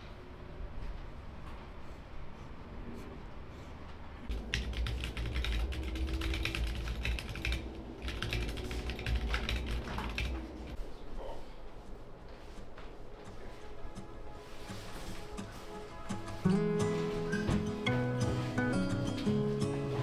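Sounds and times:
typing on keyboard: 0:04.3 - 0:10.4.

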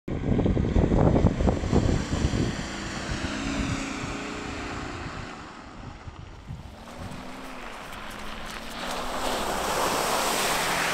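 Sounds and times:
vehicle engine running: 0:00.5 - 0:10.9
mud and water splashing: 0:06.2 - 0:10.9.

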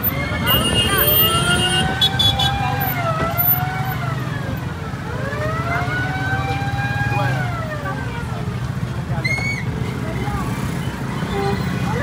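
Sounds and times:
wailing siren: 0:00.1 - 0:08.1.

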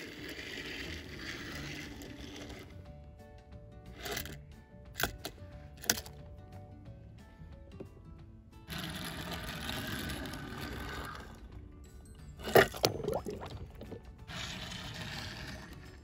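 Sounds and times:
water sloshing: 0:12.4 - 0:14.1
toy car splashing into water: 0:12.4 - 0:15.5.

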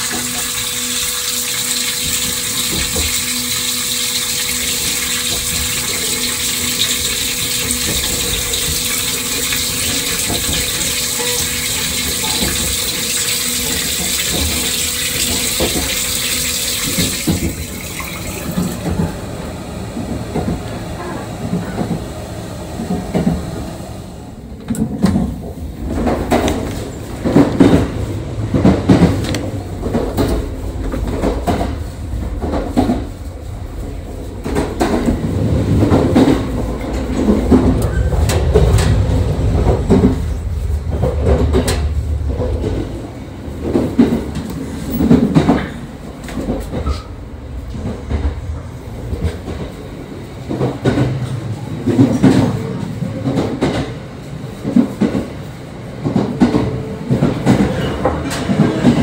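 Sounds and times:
running water: 0:00.0 - 0:18.9
pump hum: 0:00.0 - 0:20.4
train rumble with thumps: 0:00.0 - 0:59.0.

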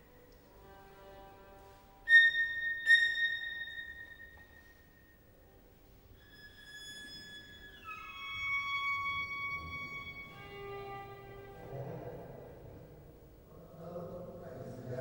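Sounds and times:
high piercing violin note: 0:02.0 - 0:04.9, 0:06.1 - 0:11.6.

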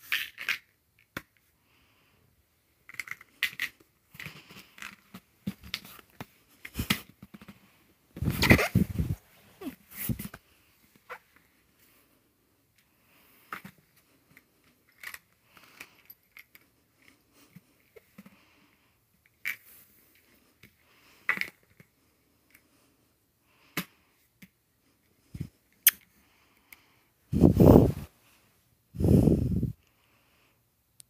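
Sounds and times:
plastic scraping on fabric: 0:08.2 - 0:10.4.

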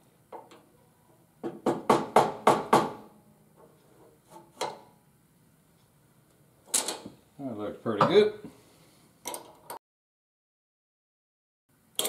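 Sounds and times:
hammer knocking on metal table: 0:01.4 - 0:03.0.

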